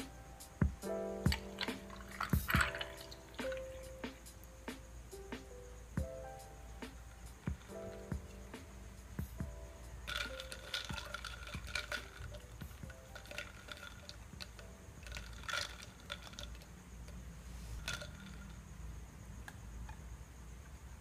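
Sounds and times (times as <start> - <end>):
ice clinking against glass: 1.3 - 3.9, 10.0 - 16.7, 17.8 - 18.6.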